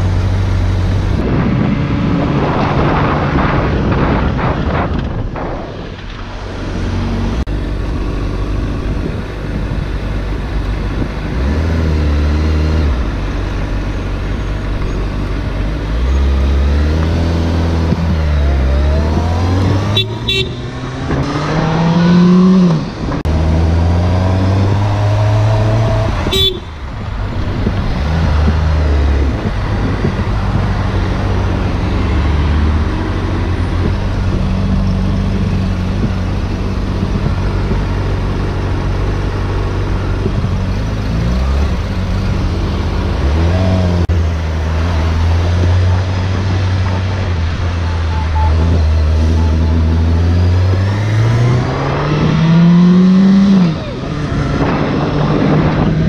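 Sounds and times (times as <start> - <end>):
motorcycle engine revving through gears: 0.0 - 56.0
wind noise: 0.0 - 56.0.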